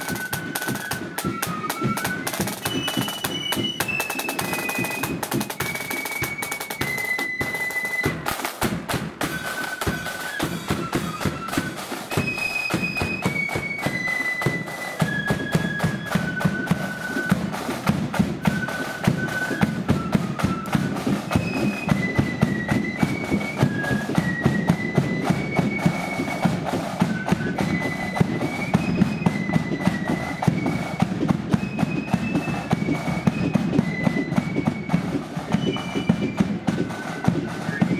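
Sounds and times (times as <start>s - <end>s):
side drums and bass drum: 0.0s - 16.6s
flute melody: 0.0s - 37.9s.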